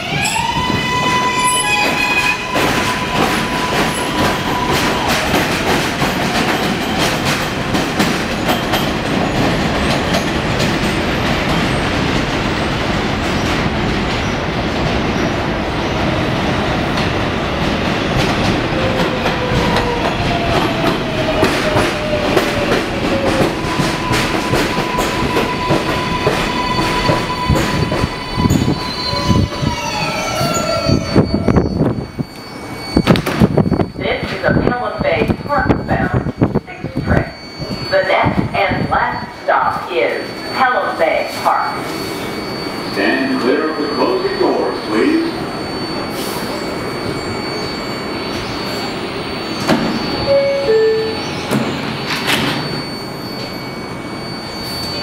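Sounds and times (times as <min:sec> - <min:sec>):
train wheel squeal: 0:00.0 - 0:07.6, 0:18.7 - 0:55.0
train wheels rumbling on rails: 0:00.0 - 0:42.9.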